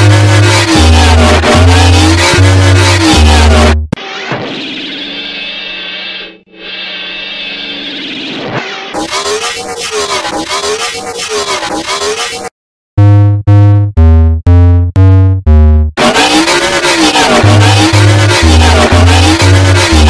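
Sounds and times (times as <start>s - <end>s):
wobbling synthesizer texture: 0.0s - 3.9s, 13.0s - 20.0s
heavy bass: 0.0s - 4.0s, 13.0s - 20.0s
loud synth notes: 0.0s - 4.9s, 13.0s - 20.0s.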